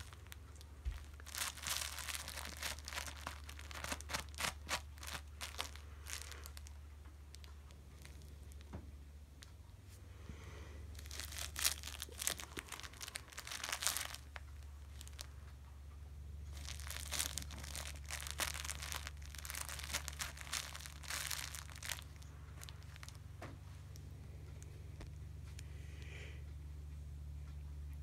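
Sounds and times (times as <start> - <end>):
fabric and catnip crinkling: 0.0 - 15.6, 16.2 - 25.7
cat clawing fabric toy: 0.9 - 6.6.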